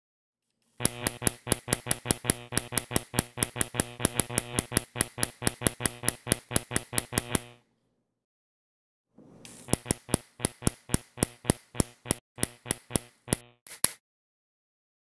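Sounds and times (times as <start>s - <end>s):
steady electrical buzz: 0.8s - 7.7s, 9.5s - 13.6s
spark gap snapping: 9.4s - 14.0s.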